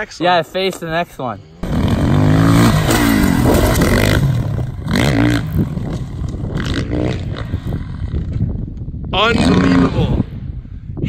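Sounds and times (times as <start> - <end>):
dirt bike engine revving: 1.4 - 8.5, 9.2 - 10.3.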